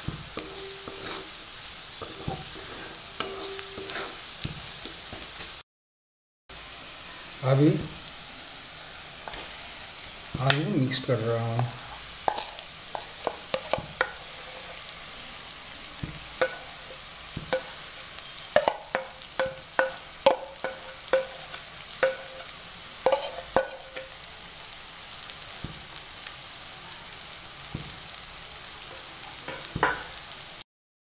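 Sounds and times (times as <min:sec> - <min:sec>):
steady sizzle: 0:00.0 - 0:05.6, 0:06.5 - 0:30.6
spatula clinking against metal pan: 0:16.4 - 0:16.9, 0:18.6 - 0:22.5, 0:23.1 - 0:24.1.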